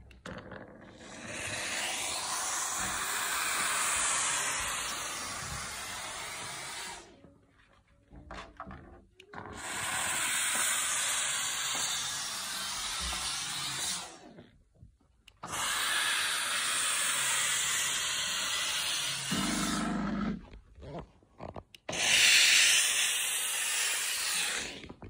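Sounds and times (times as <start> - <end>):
steam vacuum hissing: 1.0 - 7.2, 9.5 - 14.2, 15.4 - 20.0, 21.9 - 24.9
clicks: 15.1 - 15.5.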